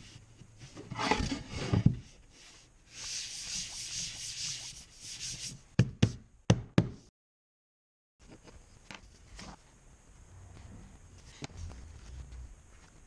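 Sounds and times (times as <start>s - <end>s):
hand rubbing wooden board: 3.0s - 5.6s.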